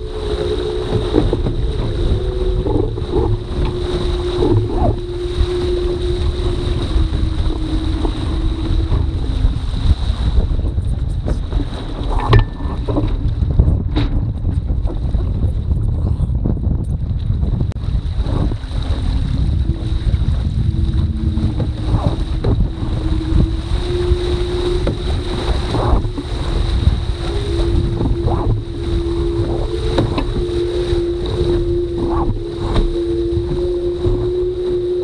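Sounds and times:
rising humming tone: 0.0 - 10.6, 18.2 - 35.0
water rushing along hull: 0.0 - 35.0
wind buffeting microphone: 0.0 - 35.0.

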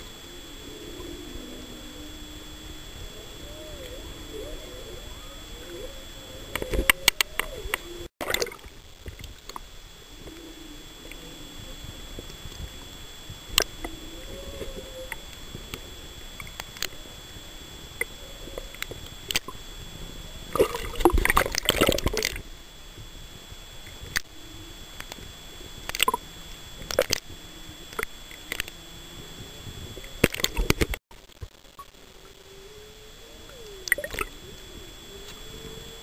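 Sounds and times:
sharp underwater clicks: 6.5 - 10.4, 16.4 - 17.0, 18.0 - 19.6, 20.6 - 22.4, 23.8 - 24.4, 25.0 - 26.2, 26.8 - 27.3, 27.9 - 28.8, 30.0 - 31.9, 33.6 - 34.3.

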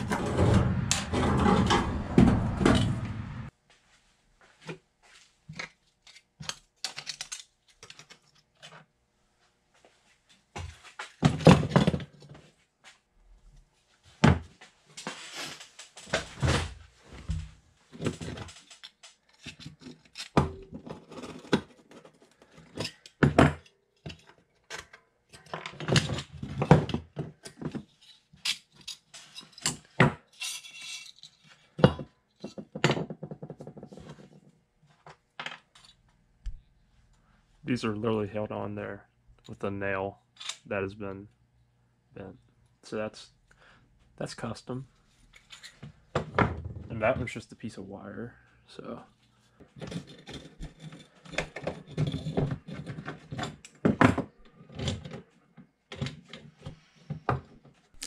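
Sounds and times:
metal parts clanking and scraping: 0.0 - 3.5, 18.0 - 23.2, 27.4 - 31.8, 45.3 - 45.8, 49.7 - 55.1.

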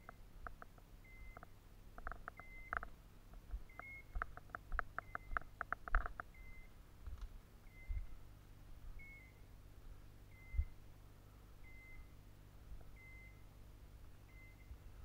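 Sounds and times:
electronic collar beeps: 2.4 - 2.8, 3.7 - 4.2, 5.0 - 5.4, 6.3 - 6.7, 7.7 - 8.1, 9.0 - 9.4, 10.3 - 10.8, 11.6 - 12.1, 13.0 - 13.4, 14.3 - 14.8.

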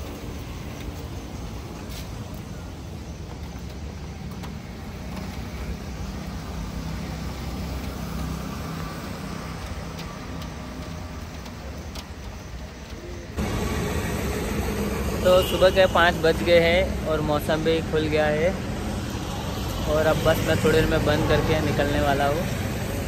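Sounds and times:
road traffic rumble: 0.0 - 23.0.

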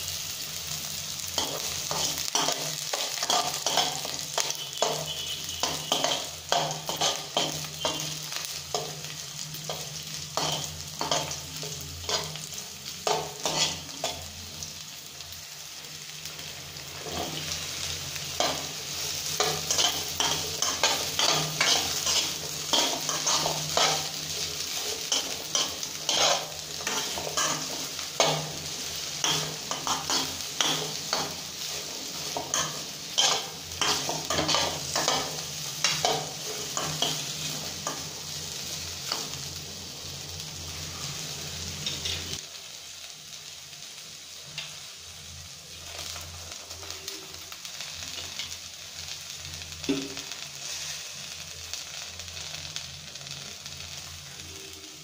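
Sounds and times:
okra sizzling in hot oil: 0.0 - 55.0
spatula scraping pan: 13.0 - 14.2, 19.4 - 31.4.

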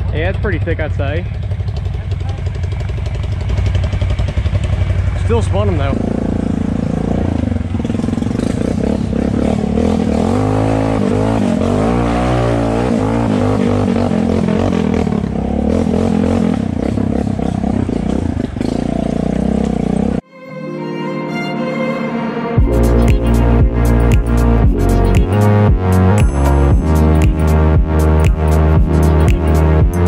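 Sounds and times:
atv engine revving: 0.0 - 20.2, 22.6 - 30.0
music: 20.2 - 30.0.

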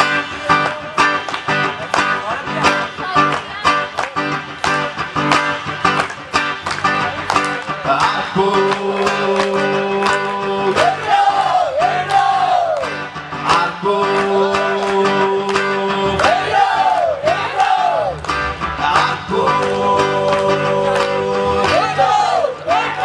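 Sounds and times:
strummed acoustic guitar: 0.0 - 23.0
man singing: 7.7 - 12.6, 13.4 - 17.9, 18.7 - 23.0.

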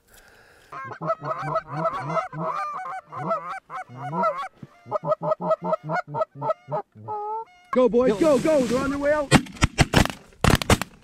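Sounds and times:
geese honking and clucking: 0.7 - 9.0.

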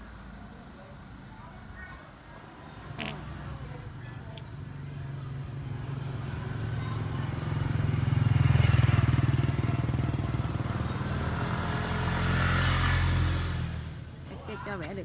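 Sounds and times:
small motorcycle engine running: 5.0 - 13.7.

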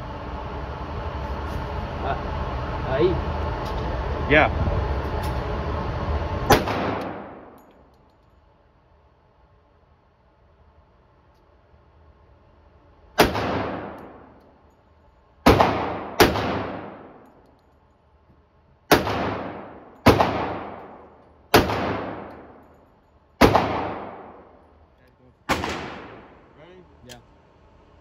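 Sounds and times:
pistol shots echoing indoors: 13.2 - 14.4, 15.4 - 17.3, 18.9 - 22.7, 23.4 - 24.7, 25.5 - 26.5.

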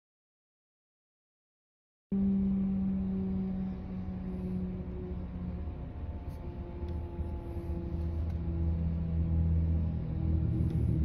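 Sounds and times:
car driving past: 2.1 - 11.0
fire engine idling: 2.8 - 11.0.

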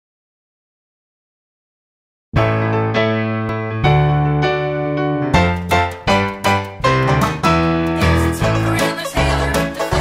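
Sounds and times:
piano chords: 2.4 - 10.0.

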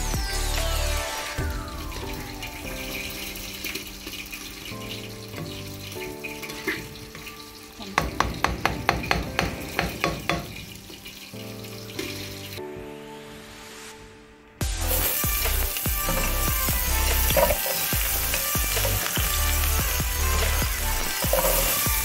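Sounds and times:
background music: 0.0 - 22.0
spoon scraping and knocking a wok: 3.4 - 12.5, 14.9 - 22.0.

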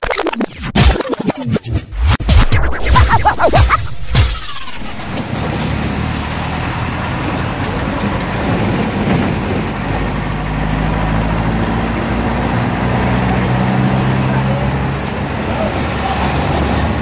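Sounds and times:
road noise: 4.1 - 17.0
bus engine running: 4.2 - 17.0.

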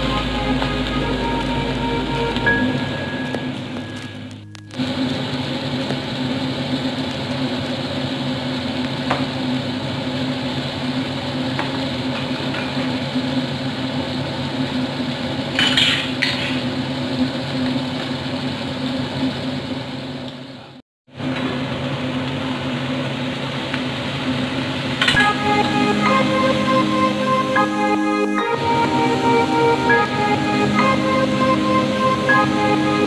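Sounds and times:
low hum: 0.0 - 7.1
fish frying in a pan: 4.8 - 20.2, 21.5 - 25.2.

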